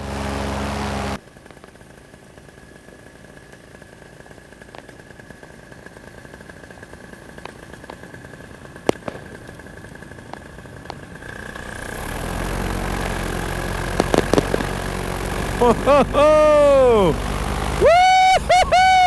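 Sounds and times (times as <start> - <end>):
paramotor engine idling: 0.0 - 19.0
fireworks popping: 7.4 - 12.2, 12.8 - 17.4.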